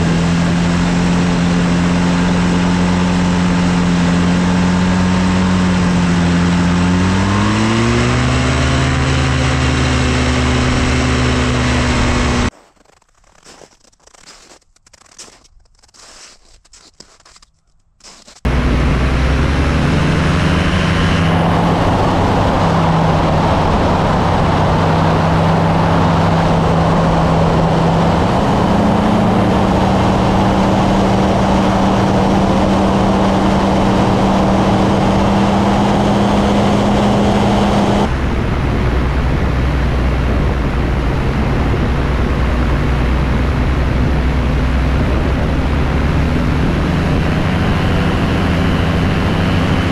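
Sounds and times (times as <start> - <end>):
ultralight aircraft engine: 0.0 - 12.5, 18.4 - 49.9
wind noise: 18.4 - 49.9.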